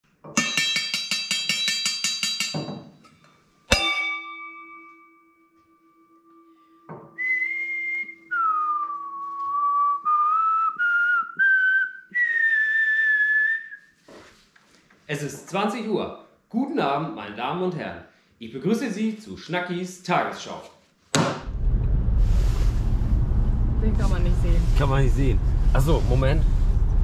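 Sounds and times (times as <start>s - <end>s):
bell-like note ringing: 3.7s - 6.9s
person whistling a tune: 7.1s - 14.0s.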